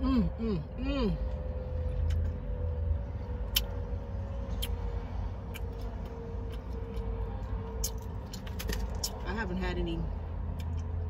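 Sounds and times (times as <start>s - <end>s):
faint car hum: 0.0s - 11.0s
crunchy chewing of fried chicken: 4.4s - 9.2s.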